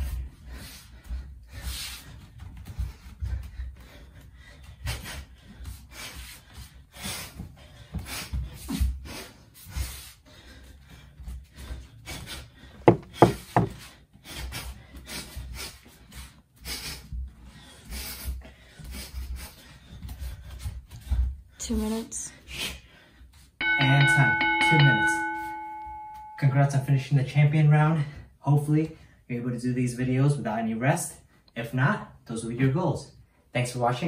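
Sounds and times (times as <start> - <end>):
bare feet thudding on wooden floor: 12.9 - 13.8
loud knocks: 12.9 - 13.8.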